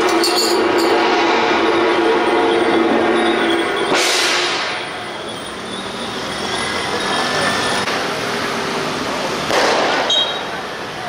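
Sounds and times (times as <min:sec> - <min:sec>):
street noise: 0:00.0 - 0:11.0
loud ringing crash: 0:00.2 - 0:07.9
indistinct voices: 0:01.9 - 0:09.5.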